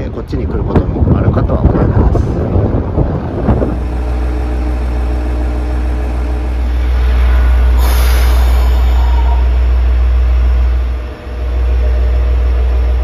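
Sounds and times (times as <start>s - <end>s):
diesel engine idling: 0.0s - 13.0s
brief hiss: 6.9s - 9.5s.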